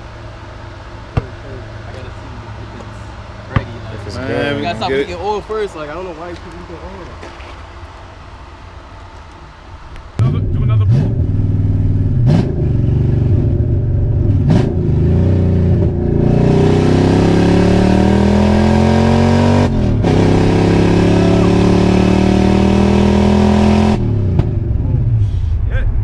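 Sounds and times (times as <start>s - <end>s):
car engine accelerating hard: 10.2s - 25.5s.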